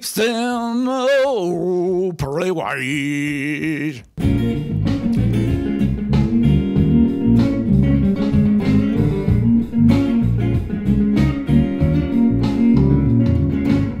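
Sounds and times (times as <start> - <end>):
bass notes: 3.0 - 14.0
instrumental guitar music: 3.6 - 14.0.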